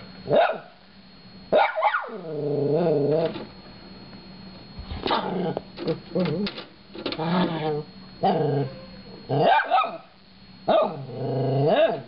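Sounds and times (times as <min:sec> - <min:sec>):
small dog barking: 0:00.3 - 0:00.8, 0:01.5 - 0:02.2, 0:05.1 - 0:05.6, 0:09.4 - 0:10.1, 0:10.7 - 0:11.1, 0:11.7 - 0:12.0
dog growling: 0:02.2 - 0:03.3, 0:07.2 - 0:09.5, 0:10.8 - 0:12.0.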